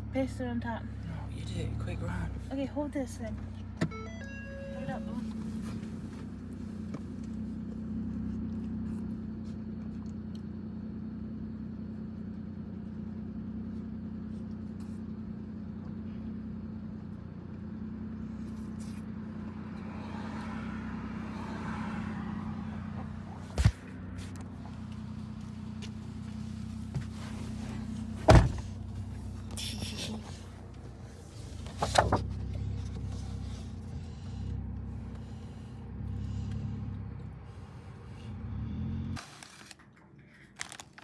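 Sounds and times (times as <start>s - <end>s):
car engine idling: 0.0s - 41.0s
thump: 28.2s - 28.7s.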